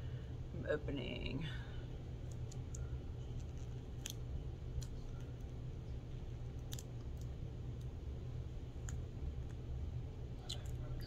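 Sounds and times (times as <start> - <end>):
low background hum: 0.0 - 11.0
fingers clicking on packaging: 6.5 - 7.9.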